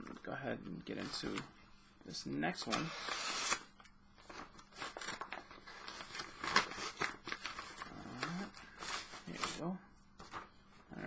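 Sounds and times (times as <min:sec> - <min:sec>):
tape ripping: 0:02.7 - 0:03.7
cardboard and tape rustling: 0:04.2 - 0:10.6.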